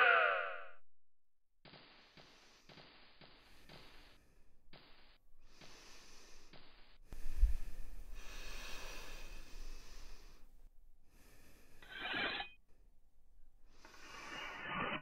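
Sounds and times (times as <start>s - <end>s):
person breathing close to microphone: 3.5s - 12.6s, 13.6s - 14.8s.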